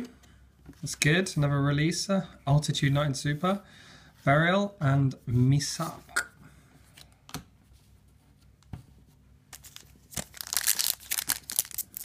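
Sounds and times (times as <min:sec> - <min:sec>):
foil wrapper crinkling: 0:09.6 - 0:12.0.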